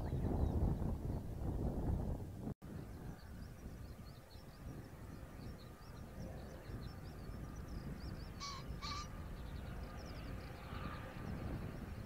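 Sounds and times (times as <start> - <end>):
wind rumble on microphone: 0.0 - 12.0
small birds twittering: 2.7 - 12.0
crow cawing: 8.4 - 9.1.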